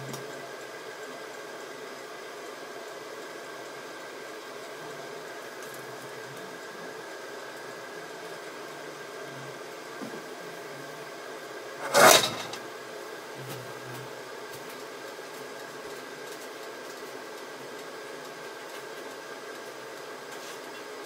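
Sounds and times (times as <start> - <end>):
steady kitchen hum: 0.0 - 21.0
frying pan metallic clatter: 11.8 - 12.6.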